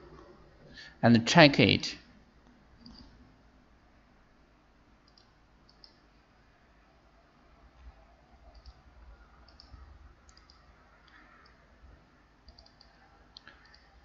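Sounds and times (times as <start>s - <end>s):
low steady hum: 0.0s - 14.0s
computer mouse clicks: 2.4s - 3.2s, 5.0s - 6.0s, 8.5s - 8.8s, 9.4s - 11.6s, 12.4s - 14.0s.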